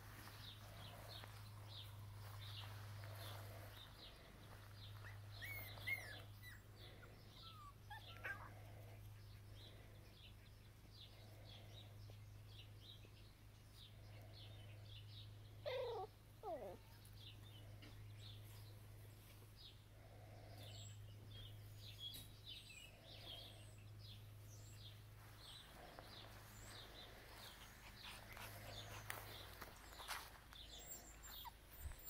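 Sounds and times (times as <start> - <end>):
faint high chirping: 4.9 - 6.7
cat crying: 15.7 - 16.8.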